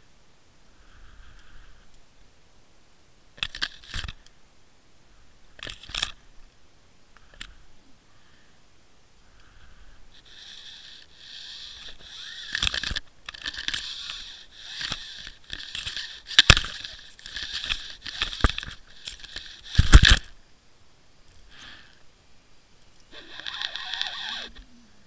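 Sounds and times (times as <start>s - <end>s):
crackling and scraping underwater: 23.1s - 24.6s.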